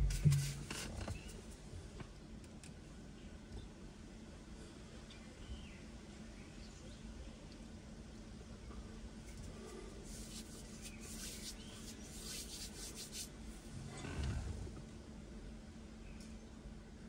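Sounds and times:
scratchy rustling: 0:00.0 - 0:00.9, 0:09.4 - 0:13.3
faint steady hum: 0:00.0 - 0:17.0.

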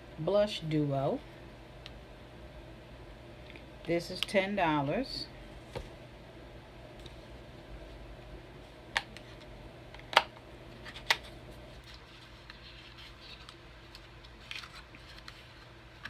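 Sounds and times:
packaging rustling: 0:10.8 - 0:16.0.

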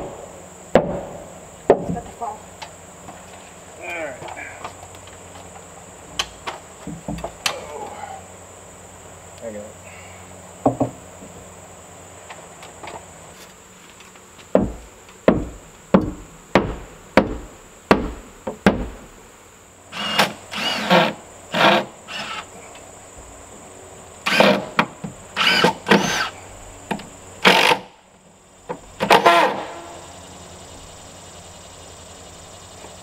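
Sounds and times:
cordless drill driving screws: 0:19.9 - 0:22.5, 0:24.2 - 0:24.6, 0:25.4 - 0:26.3, 0:27.4 - 0:27.9.

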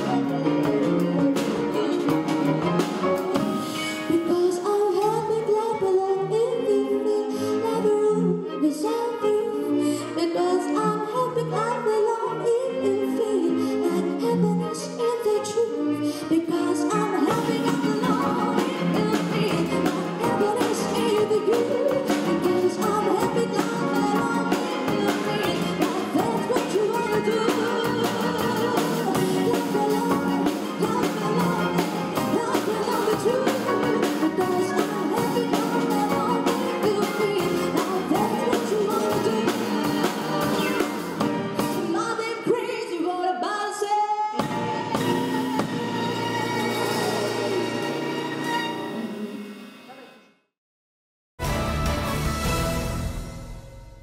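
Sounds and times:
drum kit beat: 0:00.0 - 0:04.1, 0:17.3 - 0:42.0
string ensemble: 0:00.0 - 0:42.6, 0:44.4 - 0:50.0, 0:51.4 - 0:53.7
woman singing into a microphone: 0:03.7 - 0:41.0, 0:41.8 - 0:44.4.

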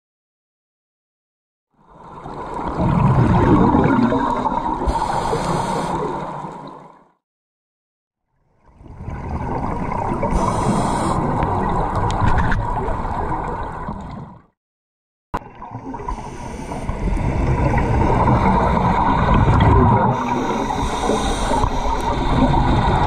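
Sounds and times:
muffled underwater rushing: 0:02.0 - 0:06.9, 0:08.8 - 0:14.4, 0:15.4 - 0:23.0
divers' air bubbling: 0:02.6 - 0:06.8, 0:15.4 - 0:23.0.

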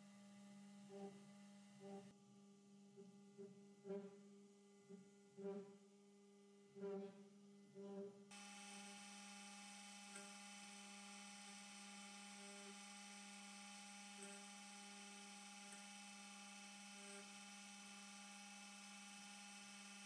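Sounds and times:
cnc spindle whine: 0:08.3 - 0:20.0.

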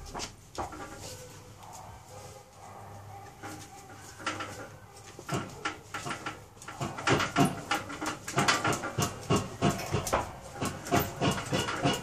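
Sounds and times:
lug wrench clanking on nut: 0:05.3 - 0:12.0.

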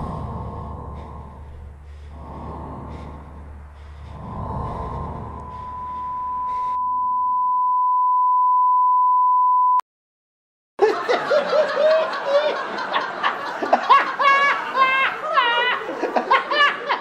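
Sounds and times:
high-pitched electronic test tone: 0:05.4 - 0:09.8
crowd laughing: 0:10.8 - 0:17.0.

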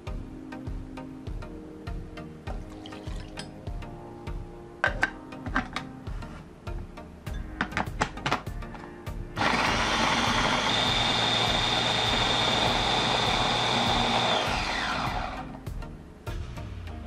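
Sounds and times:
churning food: 0:09.4 - 0:14.7
electric chopper motor whining: 0:09.4 - 0:15.5.

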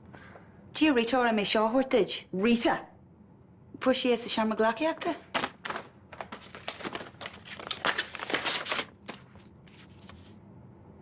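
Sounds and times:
paper rustling and crinkling: 0:05.4 - 0:10.4.

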